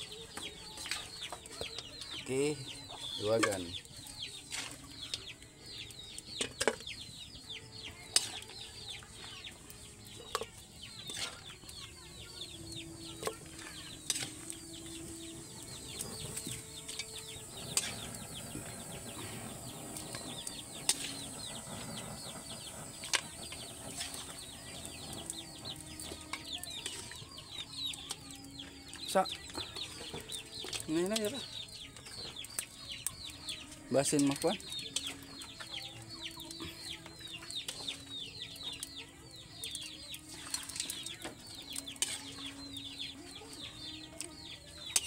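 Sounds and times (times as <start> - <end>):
chicks peeping: 1.1 - 40.3, 40.9 - 45.0
metal ladle clinking on pot: 41.7 - 42.6.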